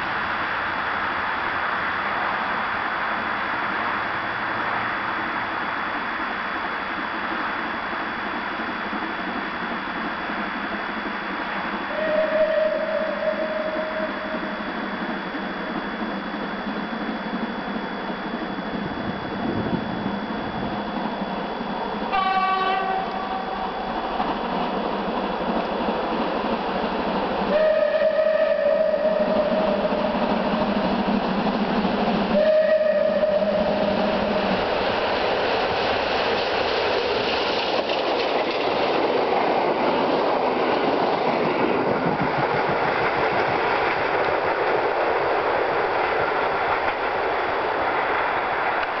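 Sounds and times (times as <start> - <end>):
train rushing past: 0.0 - 49.0
steam locomotive whistle: 11.8 - 15.5, 22.1 - 23.9, 27.5 - 30.8, 32.2 - 34.6
wheels clattering over rail joints: 34.5 - 49.0.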